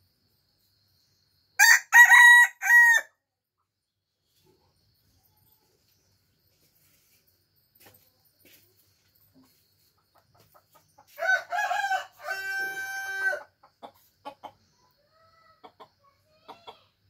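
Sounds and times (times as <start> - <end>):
rooster crowing: 1.6 - 3.1, 11.1 - 13.5
chicken clucking: 9.3 - 11.3, 12.3 - 17.0.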